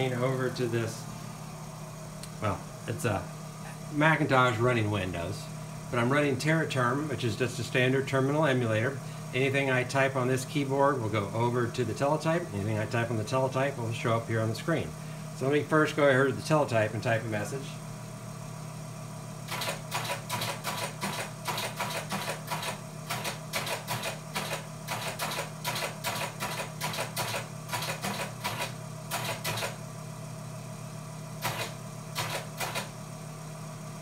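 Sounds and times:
teleprinter motor hum: 0.0s - 34.0s
teleprinter keystrokes clattering: 19.5s - 29.8s, 31.4s - 32.9s.

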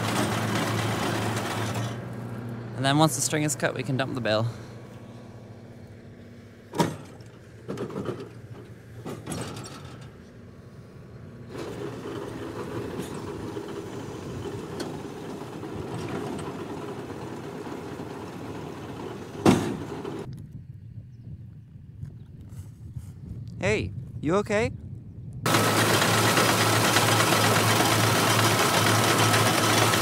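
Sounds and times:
hydraulic and engine sound: 0.0s - 3.1s, 6.7s - 20.3s, 25.5s - 30.0s
tailgate clunk: 6.7s - 10.2s, 18.5s - 20.3s.

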